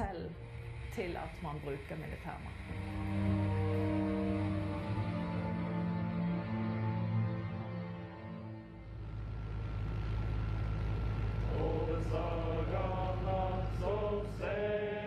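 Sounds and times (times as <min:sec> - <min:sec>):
music: 0:00.0 - 0:09.1, 0:11.5 - 0:15.0
helicopter cabin drone: 0:00.0 - 0:15.0
person chanting: 0:11.5 - 0:15.0.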